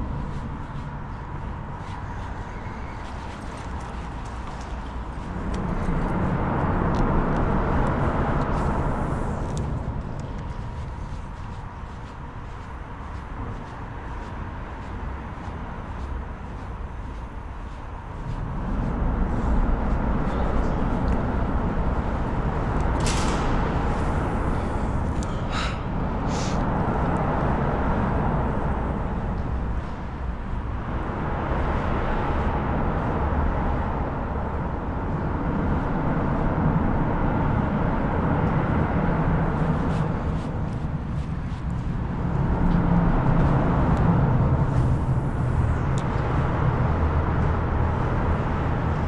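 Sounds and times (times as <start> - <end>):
traffic crossing a bridge: 0.0 - 49.0
short hissing sounds: 25.5 - 26.6.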